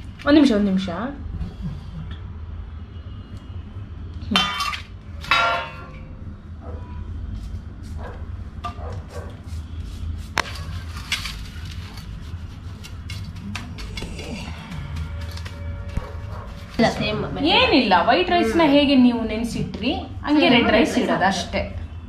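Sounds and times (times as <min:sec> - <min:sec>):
steel plates clanking: 0:04.4 - 0:06.1.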